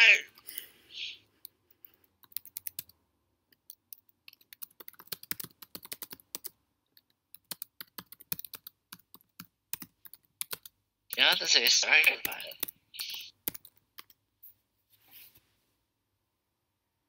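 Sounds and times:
computer keyboard typing: 1.4 - 11.4, 12.0 - 14.2.

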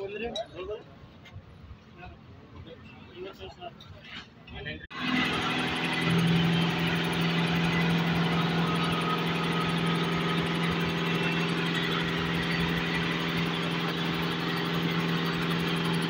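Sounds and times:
diesel engine idling: 4.9 - 16.0.

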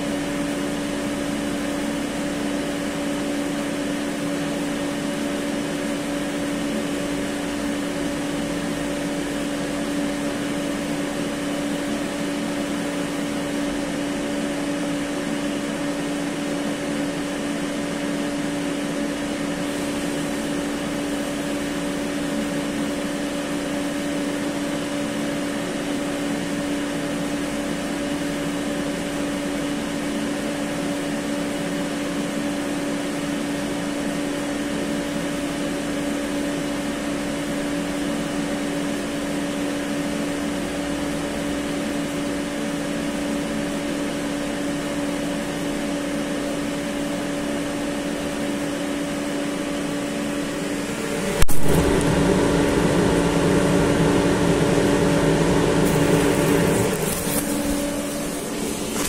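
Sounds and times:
cooling fans whooshing: 0.0 - 31.6, 46.9 - 59.0
steady electrical hum: 0.0 - 59.0.

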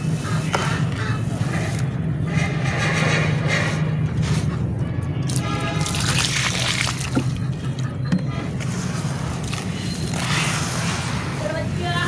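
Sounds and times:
hands squishing wet ash: 5.3 - 7.4
water pouring onto ash: 5.8 - 7.3.

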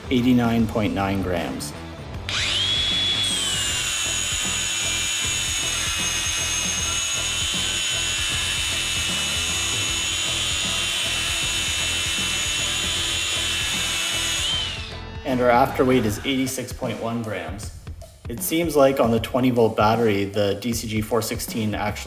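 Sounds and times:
angle grinder grinding steel: 2.2 - 16.4.

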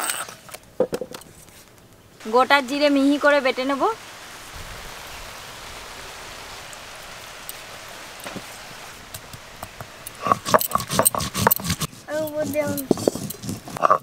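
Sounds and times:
soft hiss: 0.0 - 13.0
stone scraping on stone: 10.2 - 14.0.

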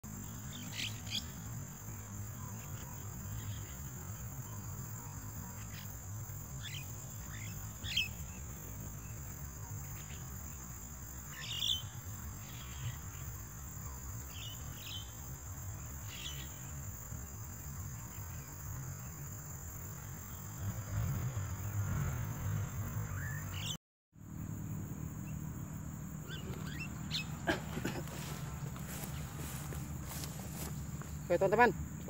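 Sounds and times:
birds calling: 0.1 - 16.8, 26.1 - 31.9.

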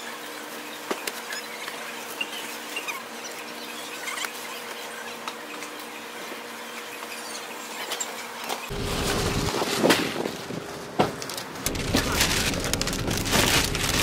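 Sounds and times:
steady hum: 8.7 - 14.0.

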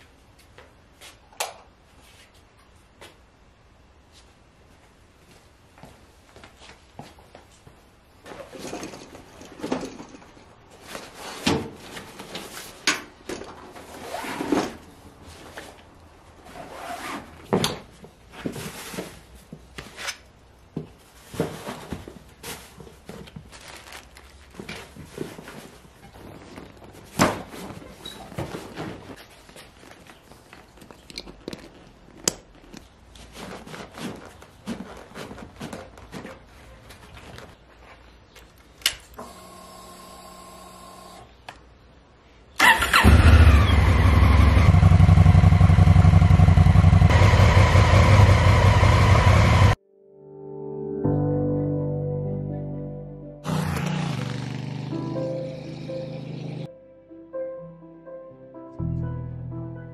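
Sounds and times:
fabric bags rustling: 21.1 - 38.3.

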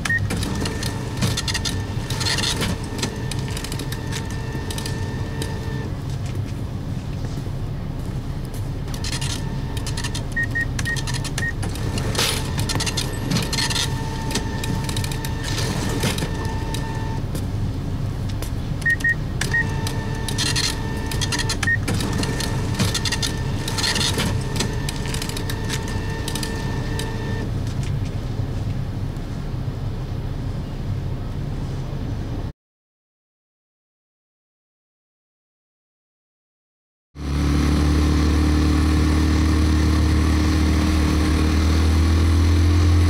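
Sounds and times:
short beeps: 18.8 - 21.8.

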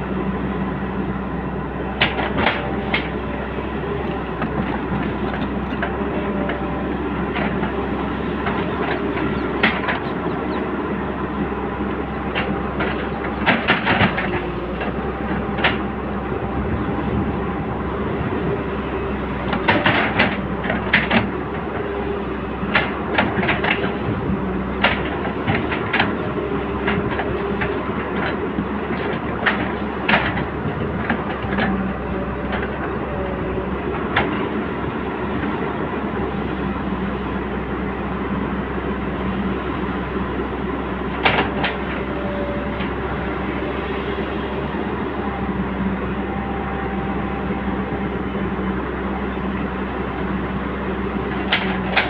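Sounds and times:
diesel engine running: 0.0 - 52.0.

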